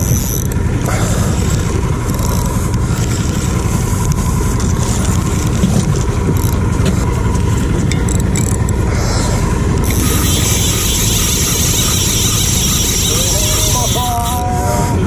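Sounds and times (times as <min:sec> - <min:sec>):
boat engine idling: 0:00.0 - 0:15.0.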